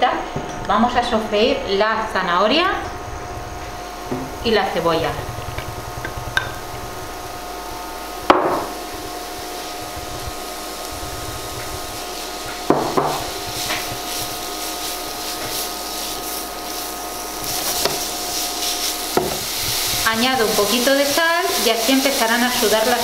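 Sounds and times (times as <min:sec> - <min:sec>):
soft sizzle of frying: 0:00.0 - 0:23.0
spatula stirring in pan: 0:10.1 - 0:23.0.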